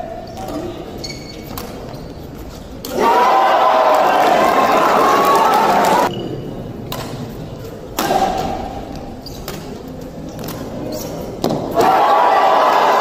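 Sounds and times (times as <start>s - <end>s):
crowd cheering and applauding: 3.0s - 6.1s
badminton rackets hitting shuttlecock: 7.9s - 10.8s.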